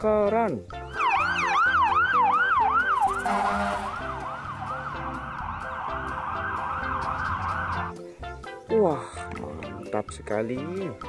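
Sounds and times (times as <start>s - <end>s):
fire truck siren yelping: 0.9s - 7.9s.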